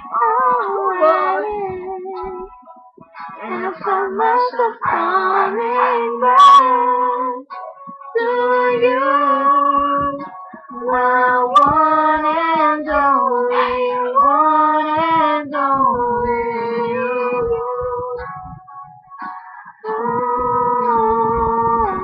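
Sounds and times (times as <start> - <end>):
girls singing a slow ballad: 0.0 - 2.6, 3.4 - 7.5, 8.2 - 18.6, 19.5 - 22.0
singer breathing: 19.3 - 19.8.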